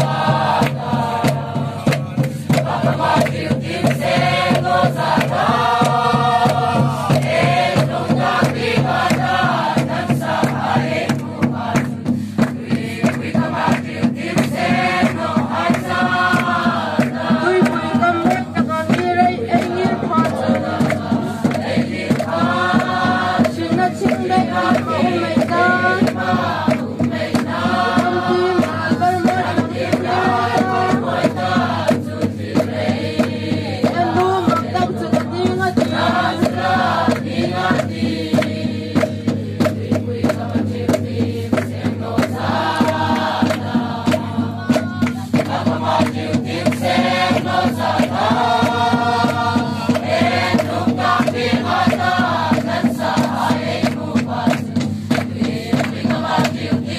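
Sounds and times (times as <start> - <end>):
barrel drums beating: 0.0 - 56.9
congregation singing a hymn: 0.0 - 56.9.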